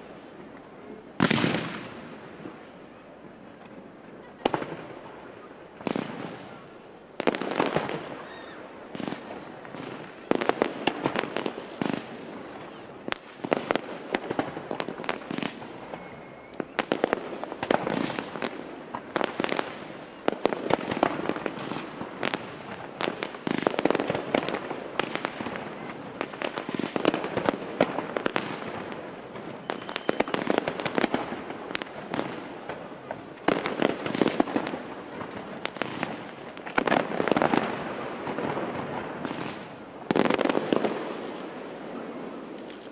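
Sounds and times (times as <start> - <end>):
fireworks bursting: 0.0 - 42.9
fireworks crackling: 0.0 - 42.9.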